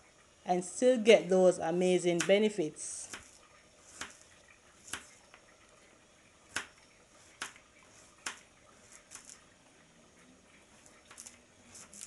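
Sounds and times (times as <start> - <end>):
knife slicing garlic on plate: 3.1 - 4.2.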